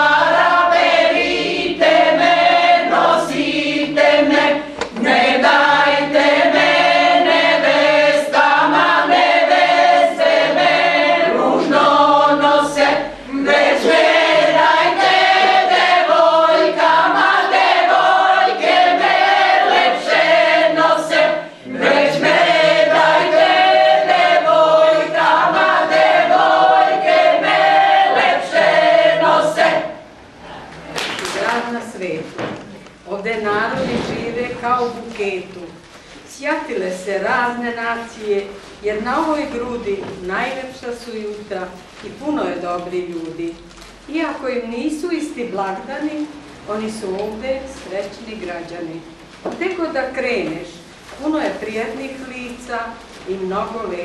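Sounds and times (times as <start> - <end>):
women's choir singing unaccompanied: 0.0 - 32.2.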